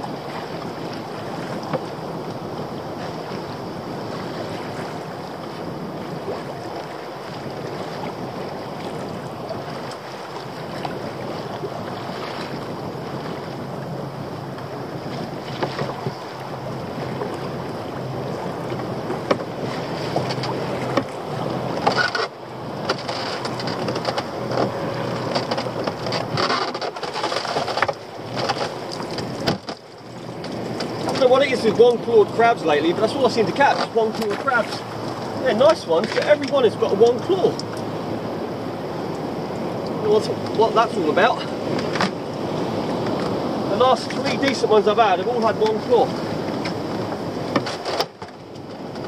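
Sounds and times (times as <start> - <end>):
water lapping against boat: 0.0 - 49.0
wind on microphone: 0.0 - 49.0
splashes and drips: 23.0 - 31.7.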